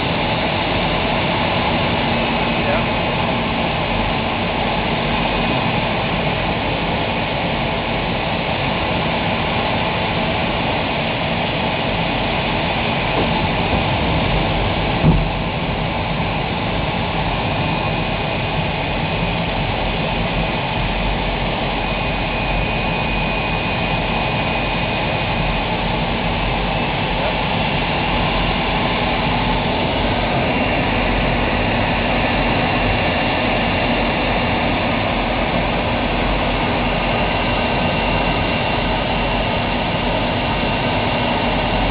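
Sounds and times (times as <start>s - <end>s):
jet engine cockpit noise: 0.0s - 41.9s
short knock: 15.0s - 15.4s.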